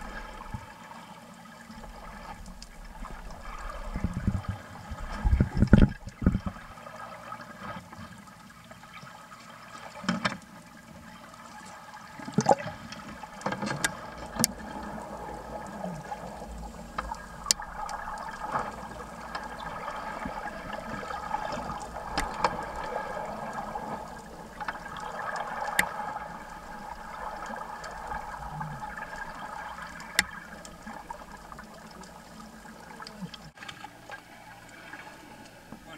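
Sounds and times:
muffled underwater water noise: 0.0 - 35.9.

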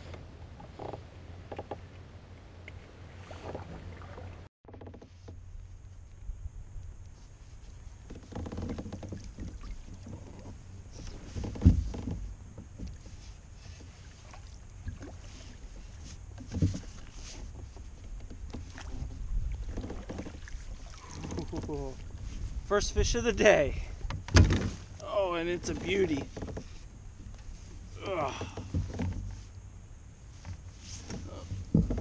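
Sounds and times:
steady low rumble: 5.4 - 8.1
thumps on plastic kayak hull: 24.0 - 24.9, 31.0 - 32.0.

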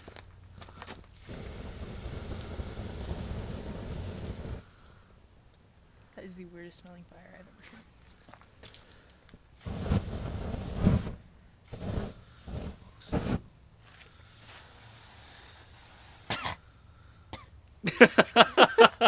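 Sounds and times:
flame jet bursts: 1.1 - 5.2, 9.4 - 16.6
person laughing: 17.8 - 19.0.

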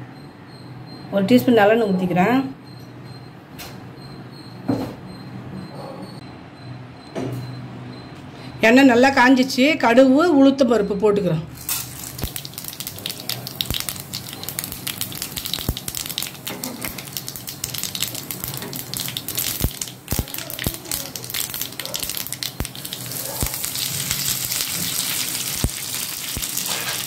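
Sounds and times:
oil sizzling: 11.6 - 27.0
seeds popping in oil: 11.6 - 27.0.

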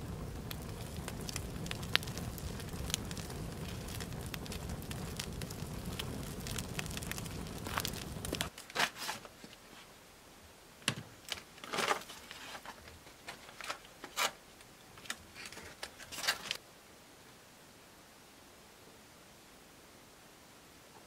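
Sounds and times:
low steady noise: 0.0 - 21.0
small things being handled: 7.6 - 9.9, 10.8 - 16.6.

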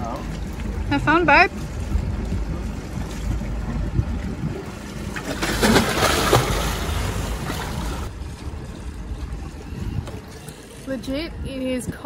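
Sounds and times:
churning water: 0.0 - 12.0
steady low rumble: 0.0 - 12.0
person splashing into sea: 5.2 - 8.1.

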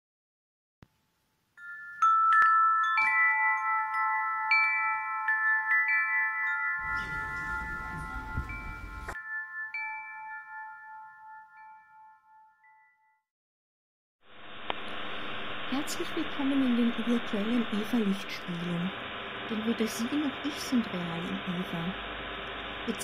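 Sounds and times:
metal chimes ringing: 1.6 - 13.2
hiss and rumble: 14.3 - 23.0.

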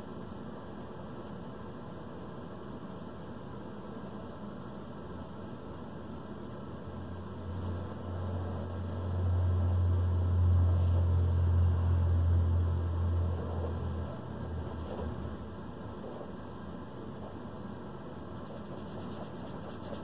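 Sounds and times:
low droning hum: 6.9 - 20.0.

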